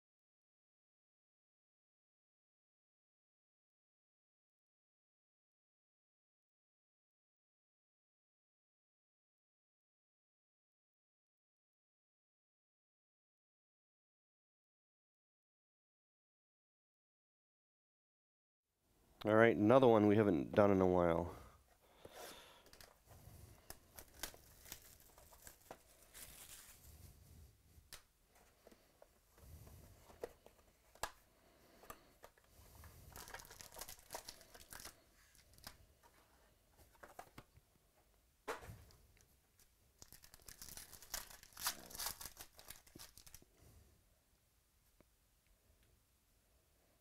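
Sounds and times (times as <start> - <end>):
plastic wrap crinkling and tearing: 23.7 - 26.8, 33.1 - 35.8, 39.6 - 43.5.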